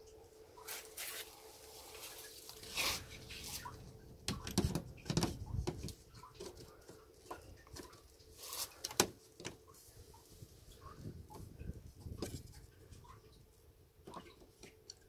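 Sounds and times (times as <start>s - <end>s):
plastic clicks and knocks: 4.3s - 6.7s.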